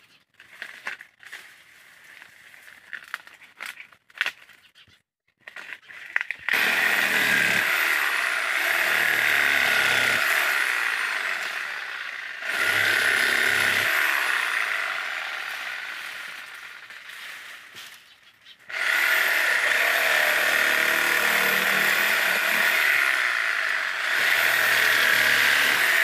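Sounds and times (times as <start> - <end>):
dry palm fronds crackling: 0.3 - 4.6, 15.6 - 18.2
power saw cutting wood: 6.5 - 17.8, 18.7 - 26.0.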